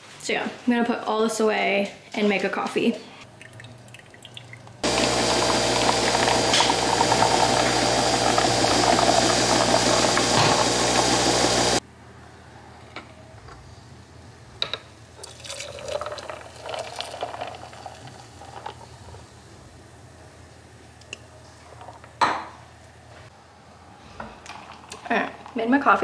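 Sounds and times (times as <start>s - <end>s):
coffee pouring into cup: 3.4s - 11.8s, 15.2s - 18.9s
coffee machine pump hum: 4.8s - 11.8s.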